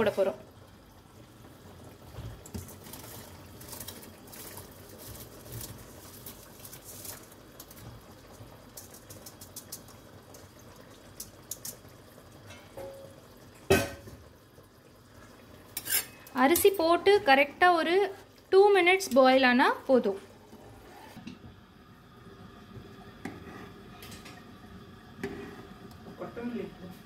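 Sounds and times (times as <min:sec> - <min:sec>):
rice pattering into water: 0:02.4 - 0:11.8.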